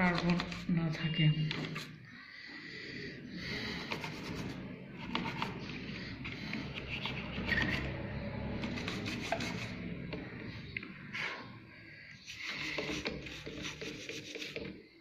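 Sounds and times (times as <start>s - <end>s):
plastic brush scrubbing circuit board: 8.6s - 9.8s, 12.3s - 14.6s.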